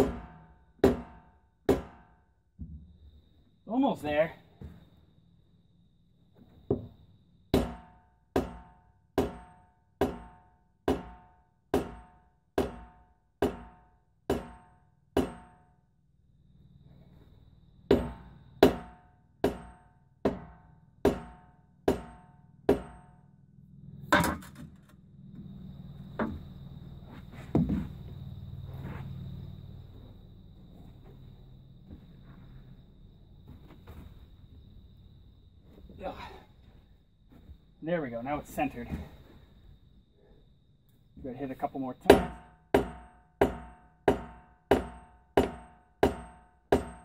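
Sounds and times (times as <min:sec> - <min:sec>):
sledgehammer hitting wheel: 0:00.0 - 0:02.2, 0:06.7 - 0:15.6, 0:17.9 - 0:23.3, 0:24.0 - 0:25.5, 0:26.1 - 0:29.0, 0:42.0 - 0:47.0.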